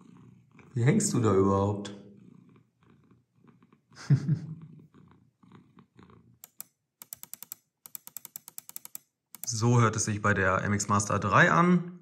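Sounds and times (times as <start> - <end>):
cat purring: 0.0 - 6.5.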